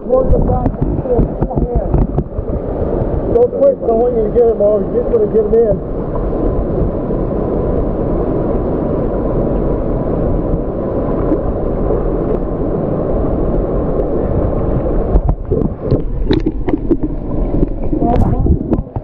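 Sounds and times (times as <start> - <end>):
muffled distorted water rushing: 0.0 - 19.0
crackling and gurgling pops: 0.2 - 3.4, 14.8 - 19.0.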